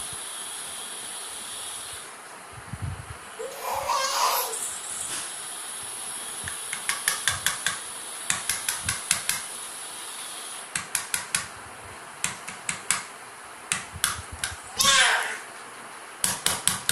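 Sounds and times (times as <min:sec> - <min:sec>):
steady hiss: 0:00.0 - 0:16.9.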